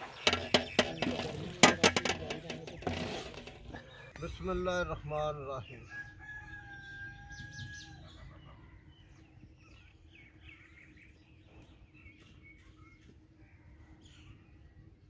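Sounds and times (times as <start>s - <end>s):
small birds chirping: 2.3s - 15.0s
rooster crowing: 5.8s - 9.0s.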